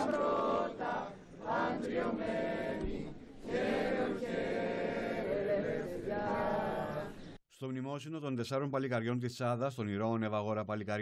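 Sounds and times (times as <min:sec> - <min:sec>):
choir singing: 0:00.0 - 0:07.4.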